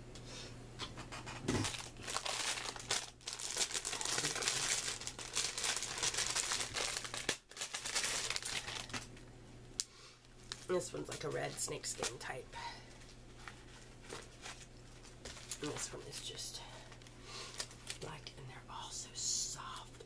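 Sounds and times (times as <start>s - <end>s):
packaging crinkling: 1.6s - 9.2s, 10.4s - 12.3s, 12.9s - 18.1s.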